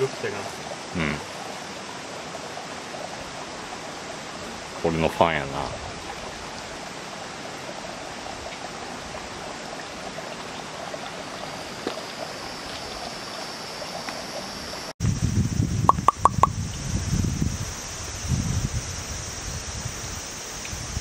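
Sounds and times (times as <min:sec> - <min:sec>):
stream water rushing: 0:00.0 - 0:15.0
wind buffeting microphone: 0:04.3 - 0:06.8, 0:15.0 - 0:21.0
short high chirps: 0:15.9 - 0:16.5.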